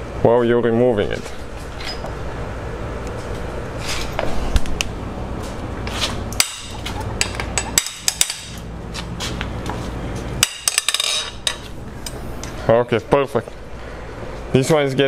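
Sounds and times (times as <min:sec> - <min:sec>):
low steady hum: 0:00.0 - 0:15.0
wrench clicking and clinking: 0:06.4 - 0:08.6, 0:10.4 - 0:12.2.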